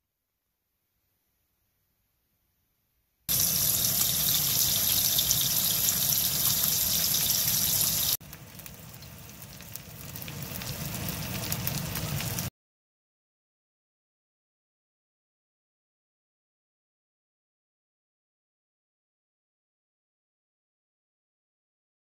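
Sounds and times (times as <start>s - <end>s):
fish fillets sizzling in a frying pan: 3.3s - 12.5s.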